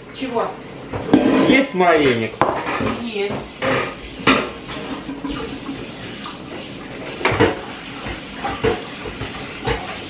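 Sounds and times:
dishes clinking on a counter: 0.9s - 5.6s, 7.2s - 10.0s.

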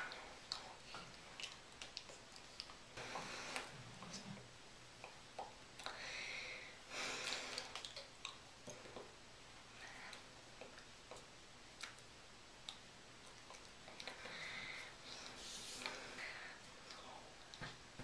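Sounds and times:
faint breaths: 3.0s - 4.4s, 5.8s - 7.8s, 13.9s - 17.7s.

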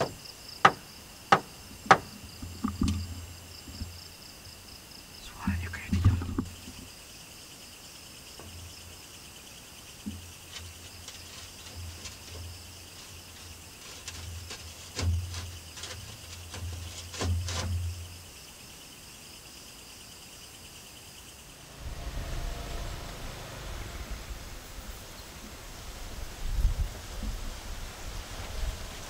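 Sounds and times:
soft knocks and low thumps: 0.0s - 4.1s, 5.3s - 6.9s
crickets chirring: 0.0s - 29.0s.

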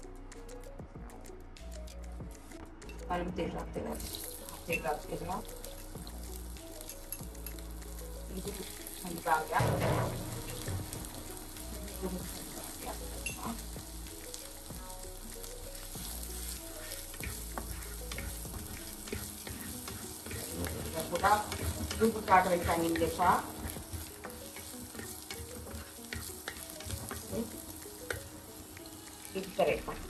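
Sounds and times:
garlic sizzling in oil: 3.9s - 30.0s
wooden spoon stirring: 15.4s - 29.6s.

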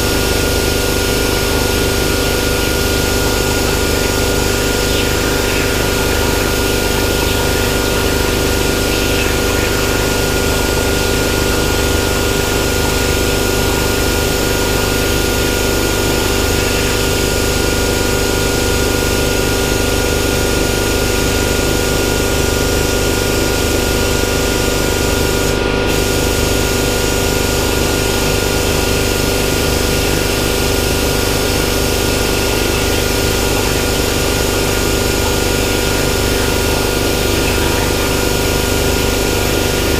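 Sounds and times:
plasma cutter hissing: 0.0s - 39.9s.

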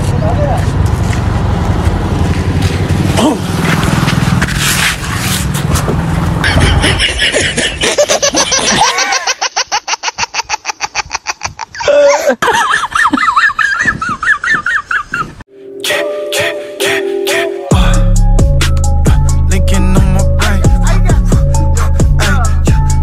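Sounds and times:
street traffic: 0.0s - 8.7s
high-pitched wavering laughter: 6.4s - 15.4s
rhythmic laughter: 6.4s - 15.4s.

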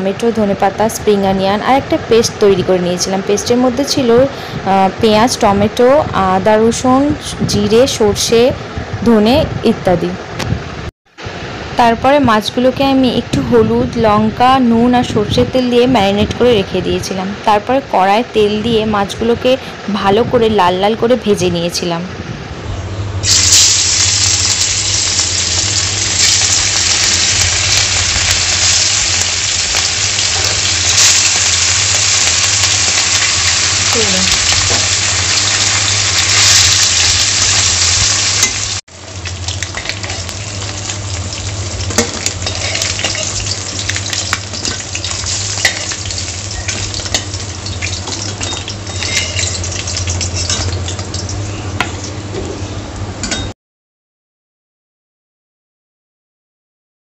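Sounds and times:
fish sizzling in hot oil: 23.2s - 51.4s
spatula scraping a metal pan: 42.4s - 43.4s, 48.9s - 49.6s.

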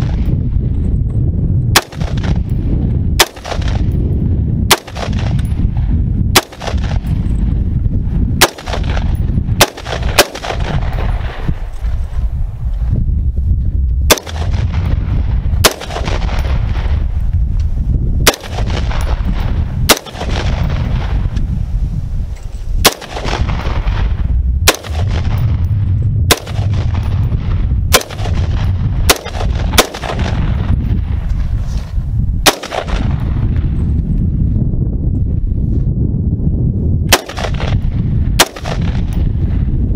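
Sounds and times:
steady low rumble: 0.0s - 39.9s
rifle shots echoing: 1.8s - 2.5s, 3.2s - 4.0s, 4.7s - 5.6s, 6.4s - 7.3s, 8.4s - 11.6s, 14.1s - 17.0s, 18.2s - 21.2s, 22.8s - 30.7s, 32.4s - 33.5s, 37.1s - 39.2s.

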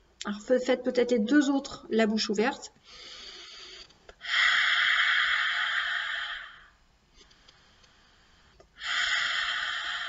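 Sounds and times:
woman breathing deeply: 2.8s - 6.8s, 7.4s - 10.0s.

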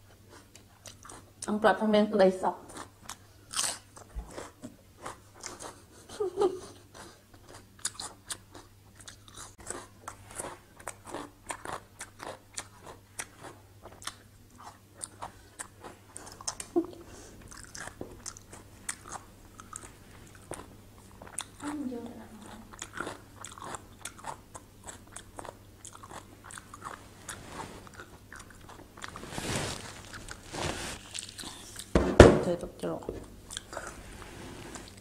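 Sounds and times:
close chewing crunches: 0.3s - 1.5s, 2.7s - 5.8s, 6.9s - 16.7s, 17.5s - 21.8s, 22.4s - 31.9s.

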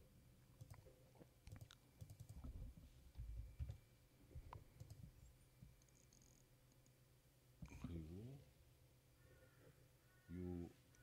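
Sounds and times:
computer mouse clicks: 0.6s - 0.8s, 1.4s - 2.5s, 4.5s - 5.0s
keyboard key presses: 1.5s - 2.5s.

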